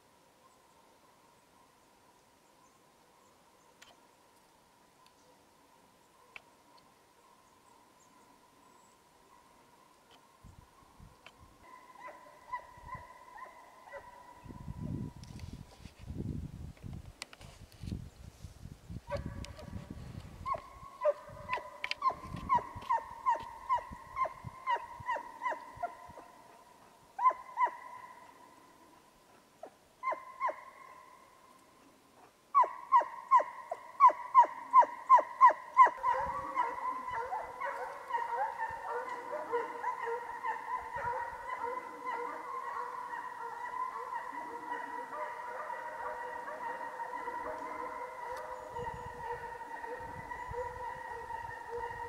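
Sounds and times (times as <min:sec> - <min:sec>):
hounds baying: 0:11.6 - 0:14.6, 0:20.4 - 0:31.2, 0:32.2 - 0:52.0.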